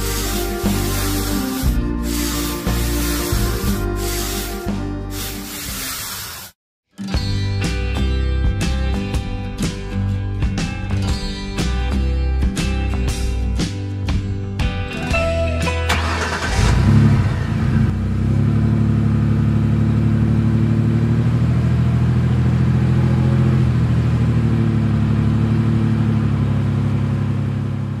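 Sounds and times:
truck engine revving and running: 15.9 - 28.0.

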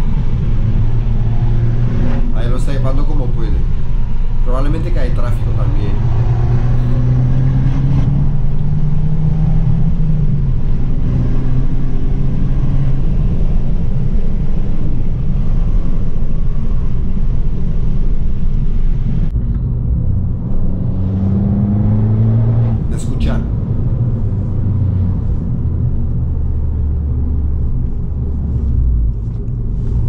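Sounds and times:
car engine accelerating: 0.0 - 30.0.

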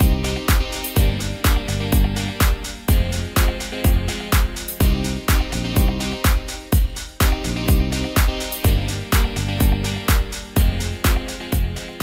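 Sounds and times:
dance music: 0.0 - 12.0
kick drum beat: 0.0 - 12.0.

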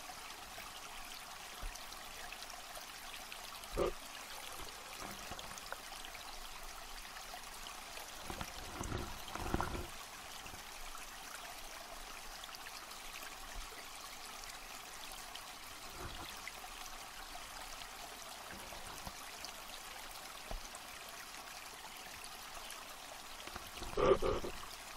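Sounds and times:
underwater rushing hiss: 23.7 - 24.6.

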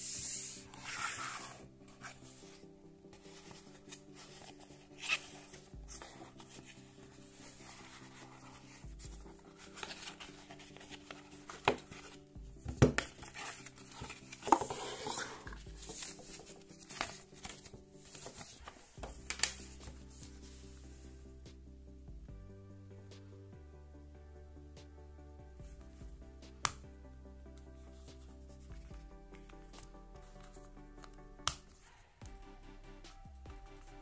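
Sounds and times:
quiet background music: 0.0 - 34.0
paper rustling: 0.7 - 20.2.

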